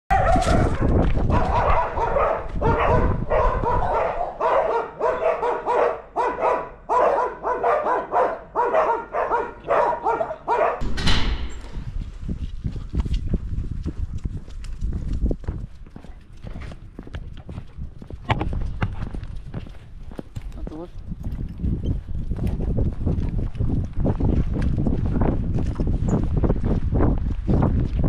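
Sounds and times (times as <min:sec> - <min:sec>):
dog barking: 0:00.1 - 0:10.8.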